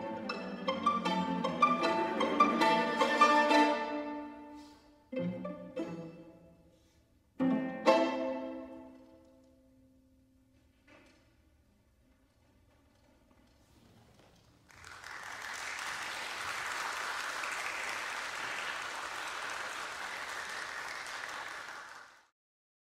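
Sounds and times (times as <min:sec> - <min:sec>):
audience applause: 0:14.6 - 0:22.3.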